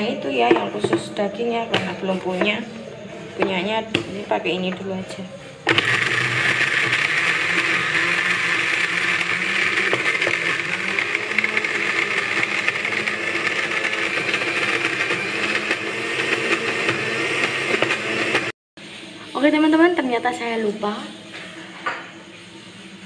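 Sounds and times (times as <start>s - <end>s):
electric blender grinding: 5.7s - 18.6s.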